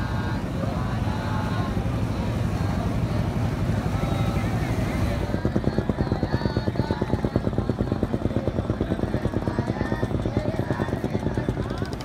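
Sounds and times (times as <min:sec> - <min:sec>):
boat engine chugging: 0:00.0 - 0:12.0.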